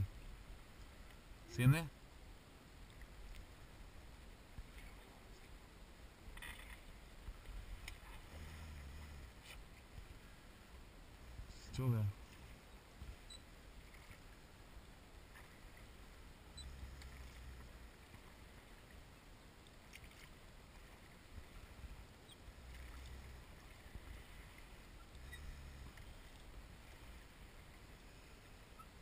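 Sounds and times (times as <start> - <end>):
oars moving in water: 6.3 - 10.7, 15.2 - 29.0.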